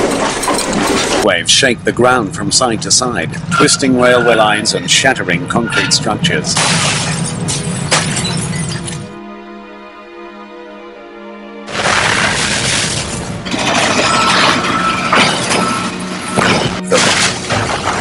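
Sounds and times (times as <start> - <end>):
rough crashing and rattling: 0.0 - 1.3, 6.4 - 9.1, 11.7 - 18.0
music sustained chord: 9.1 - 11.7.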